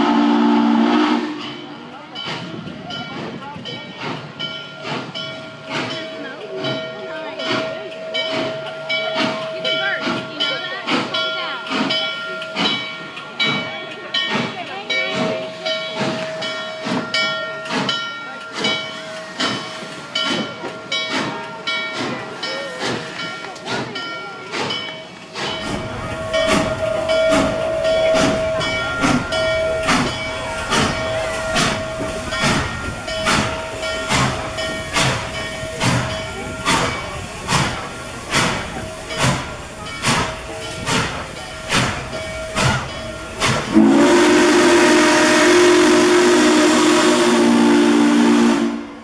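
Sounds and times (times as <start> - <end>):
locomotive bell ringing: 1.1 - 49.0
steam whistle chord: 43.7 - 49.0.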